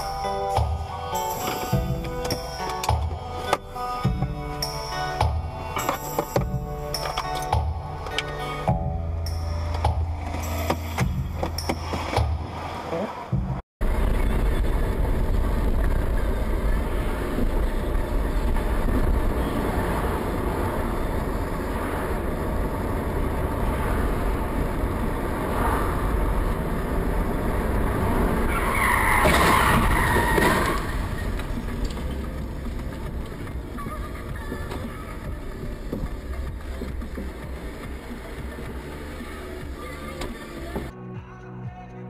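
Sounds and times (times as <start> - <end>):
car engine and road rumble: 0.0 - 41.0.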